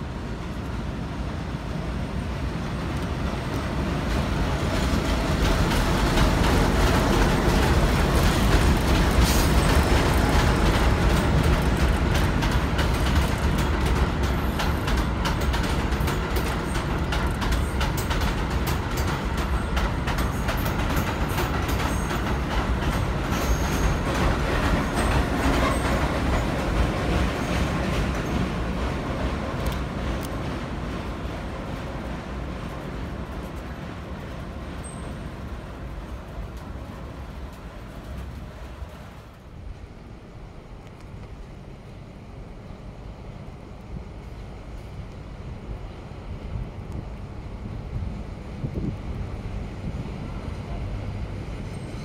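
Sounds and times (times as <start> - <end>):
diesel locomotive rumble: 0.0 - 52.0
train wheels clicking over rail joints: 2.8 - 39.5
high wheel squeals: 23.4 - 24.0.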